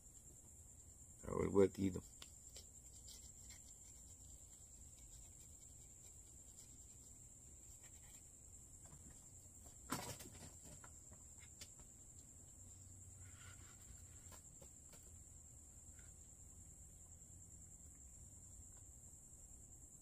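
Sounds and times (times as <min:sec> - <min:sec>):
faint high whine: 0:00.0 - 0:20.0
knock and rustle of handling: 0:02.1 - 0:12.0.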